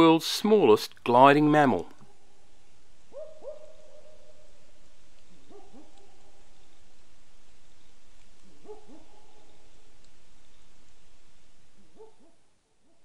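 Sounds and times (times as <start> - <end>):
owl hooting: 2.0 - 4.8.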